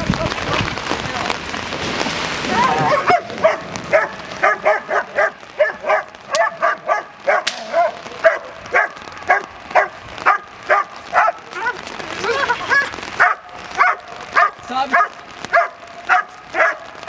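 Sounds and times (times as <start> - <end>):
dog barking rapidly: 2.9 - 11.4, 12.7 - 16.9
sharp cracks: 3.3 - 10.7.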